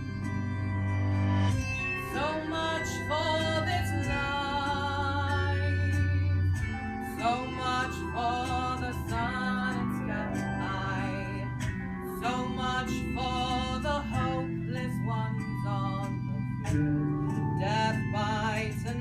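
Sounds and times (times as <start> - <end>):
instrumental accompaniment: 0.0 - 19.0
low bass notes: 0.0 - 19.0
woman singing: 2.1 - 6.5, 7.1 - 16.3, 17.6 - 19.0.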